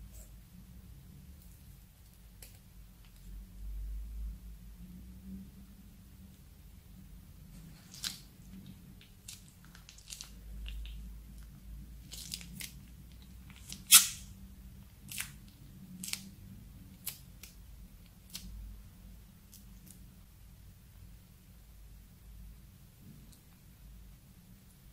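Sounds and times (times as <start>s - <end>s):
plastic piping bag crinkling: 7.7s - 14.3s.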